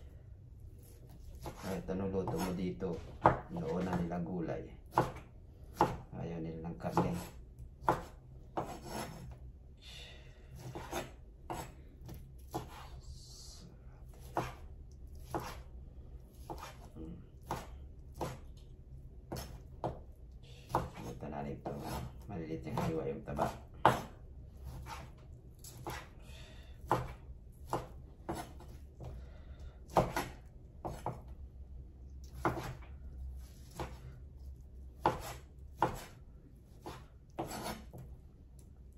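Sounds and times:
knife chopping on wooden board: 0.8 - 6.1, 6.8 - 9.4, 10.6 - 13.0, 14.1 - 15.7, 16.3 - 18.6, 19.3 - 20.1, 20.7 - 26.2, 26.8 - 29.2, 29.9 - 31.3, 32.2 - 32.9, 33.5 - 34.2, 35.0 - 38.1
knife sawing through meat: 8.6 - 9.3, 10.5 - 11.8, 20.6 - 25.1, 36.8 - 38.0.

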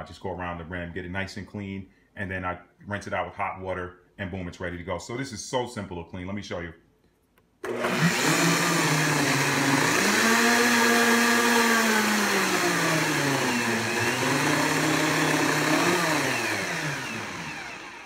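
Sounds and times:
blender motor whining: 7.6 - 18.0.

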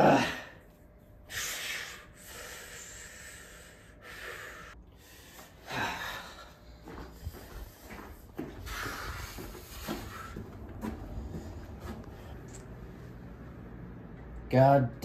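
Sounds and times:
man breathing heavily through nose: 1.2 - 12.3.

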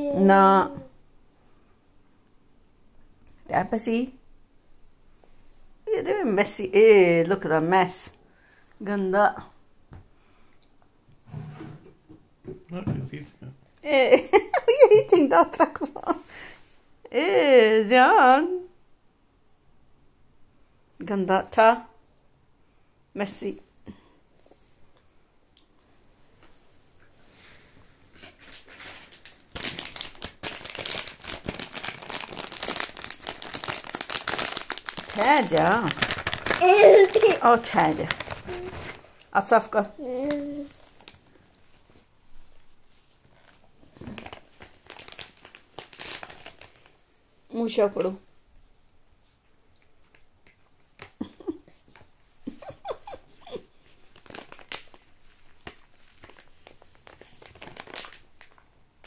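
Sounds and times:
toddler vocalizing: 0.0 - 0.9, 36.6 - 37.4
crinkly plastic packaging rustling: 28.0 - 39.2, 40.2 - 47.0, 53.8 - 59.0.

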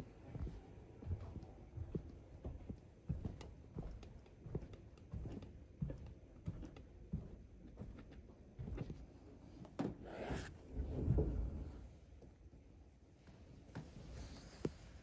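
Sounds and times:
footsteps on wooden floor: 0.2 - 9.1.

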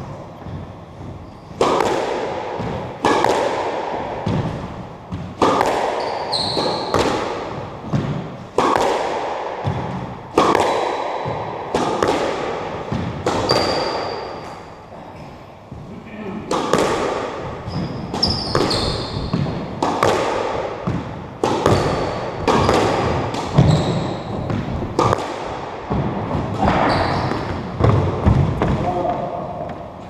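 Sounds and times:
ball hitting racket and walls: 0.0 - 30.0
shoe squeaks: 1.2 - 1.6, 6.0 - 7.0, 13.4 - 14.7, 17.6 - 19.4, 21.7 - 22.8, 23.6 - 24.5, 26.8 - 27.6.

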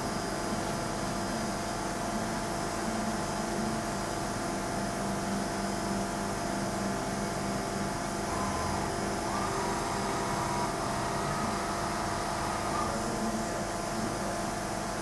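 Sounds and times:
high drive whine: 0.0 - 15.0
machine hum: 5.4 - 14.6
coolant spray hissing: 8.3 - 13.4.

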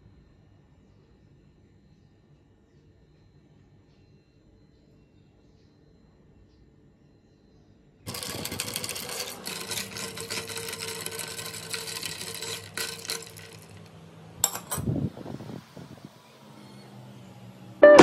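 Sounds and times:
spoon stirring ice cubes: 8.1 - 14.9.

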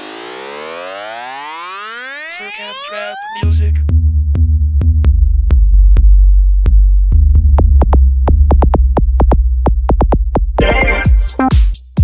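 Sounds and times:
electronic trap beat: 0.2 - 12.0
deep sustained bass: 3.8 - 8.5
drum machine ticks: 5.0 - 12.0.

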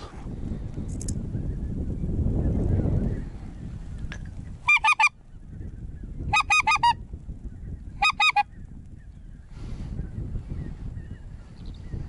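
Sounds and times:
goose honking: 4.7 - 5.1, 8.0 - 8.5.

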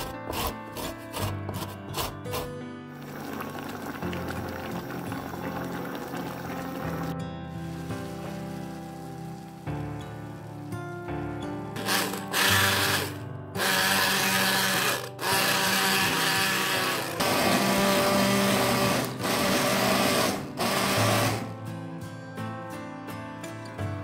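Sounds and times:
immersion blender running: 11.8 - 21.4.

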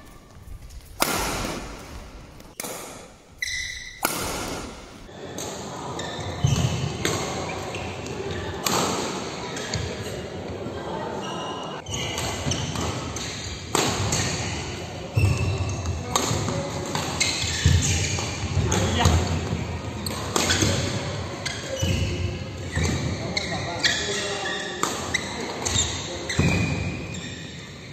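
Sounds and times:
rackets striking shuttlecock: 0.2 - 5.1.

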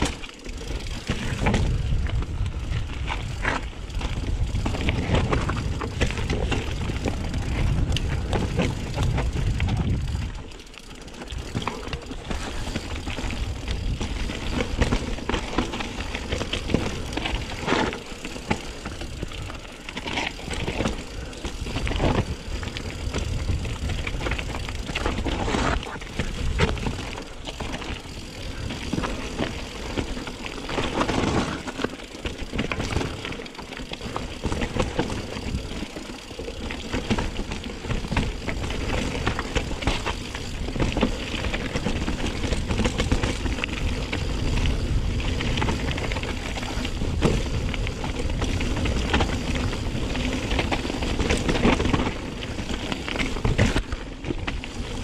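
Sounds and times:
bike rattling: 0.0 - 55.0
tyres crunching over gravel: 0.0 - 55.0
wind rumble on microphone: 0.6 - 10.5, 11.4 - 17.8, 20.4 - 30.2, 37.0 - 55.0.

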